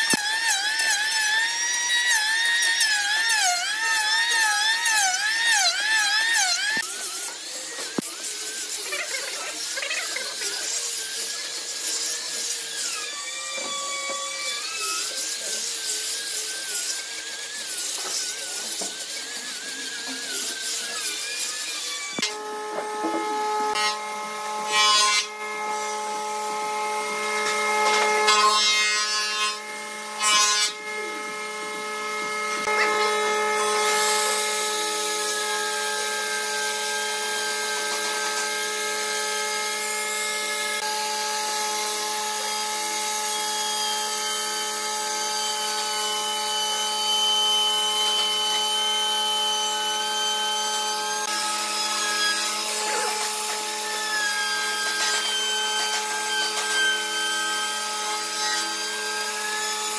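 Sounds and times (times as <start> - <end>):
router cutting wood: 0.0 - 59.9.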